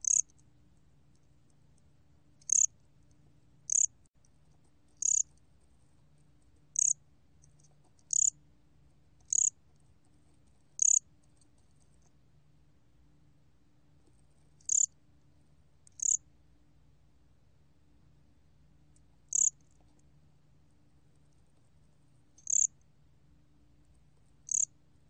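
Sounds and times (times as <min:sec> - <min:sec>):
cricket chirping: 0:00.0 - 0:00.4, 0:02.4 - 0:02.7, 0:03.7 - 0:04.0, 0:05.0 - 0:05.3, 0:06.7 - 0:07.0, 0:08.0 - 0:08.4, 0:09.2 - 0:09.6, 0:10.8 - 0:11.0, 0:14.6 - 0:15.0, 0:15.9 - 0:16.2, 0:19.3 - 0:19.8, 0:22.4 - 0:22.8, 0:24.4 - 0:24.8.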